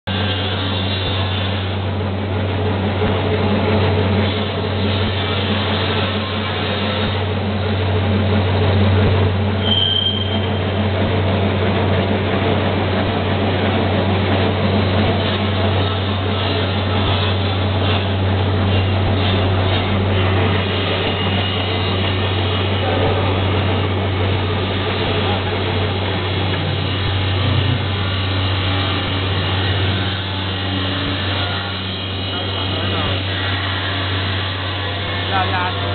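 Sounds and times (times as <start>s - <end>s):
wrapping machine humming: 0.1s - 35.9s
short high squeal: 9.6s - 10.8s.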